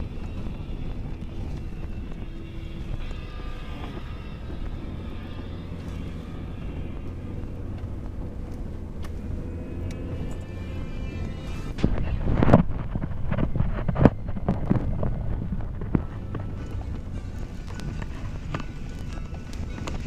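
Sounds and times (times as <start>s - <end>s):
truck engine running: 0.0s - 20.0s
tyre road noise: 0.0s - 20.0s.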